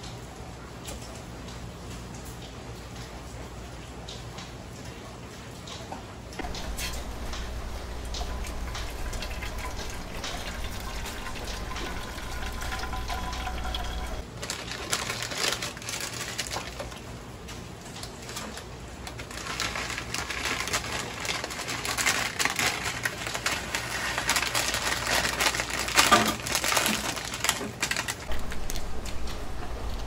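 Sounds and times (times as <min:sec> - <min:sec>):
plastic packet crinkling: 0:06.4 - 0:17.2, 0:17.9 - 0:30.0
plastic packet tearing open: 0:14.2 - 0:17.0, 0:18.2 - 0:29.2.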